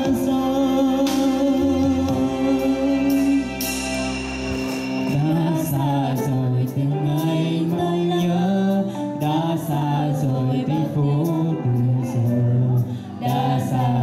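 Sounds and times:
backing track with steady beat: 0.0 - 14.0
boy and girl singing: 5.2 - 14.0.

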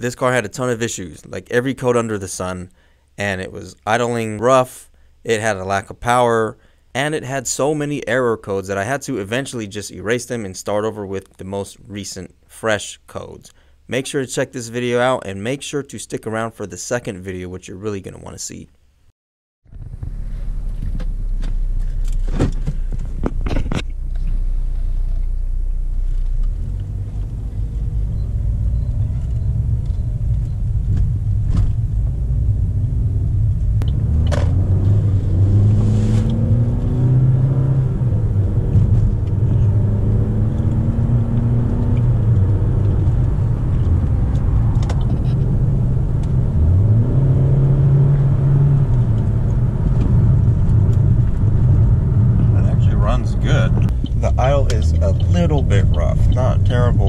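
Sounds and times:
car engine and road rumble: 19.6 - 57.0.

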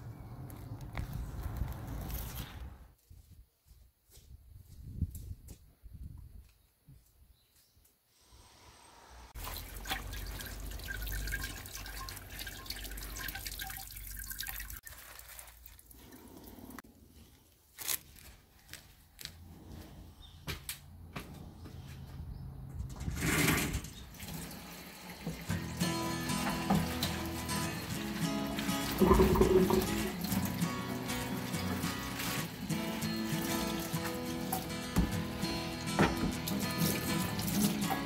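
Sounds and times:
tap water splashing on vegetables: 9.4 - 15.8, 25.1 - 38.0
water drips: 9.4 - 16.5, 24.1 - 32.0.

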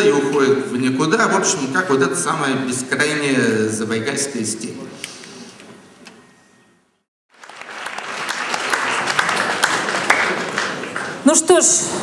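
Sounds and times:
audience applauding: 7.3 - 11.8.

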